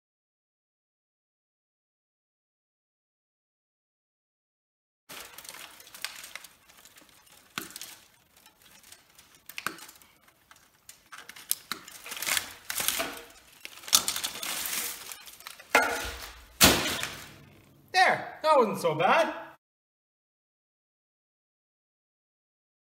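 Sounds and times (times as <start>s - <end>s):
copper windings clattering: 5.1s - 16.5s
metal knocks and scrapes: 5.1s - 17.7s.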